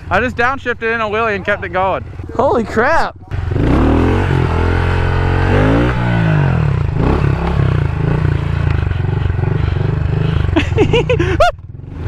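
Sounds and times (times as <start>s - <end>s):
motorbike engine revving and puttering: 3.2s - 12.0s.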